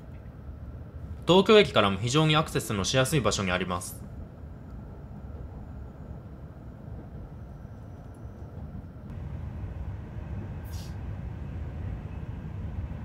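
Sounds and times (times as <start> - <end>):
train rumbling from inside: 0.0 - 13.0
brief hiss: 10.6 - 11.1.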